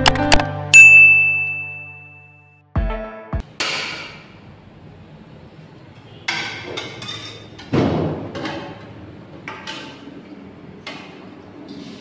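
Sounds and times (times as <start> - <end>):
metal cookware knocking and clanking: 6.3 - 10.0.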